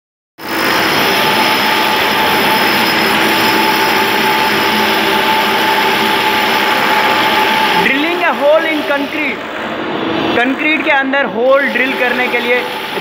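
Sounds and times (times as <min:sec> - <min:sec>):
hammer drill boring into concrete: 0:00.4 - 0:09.3, 0:11.6 - 0:13.0.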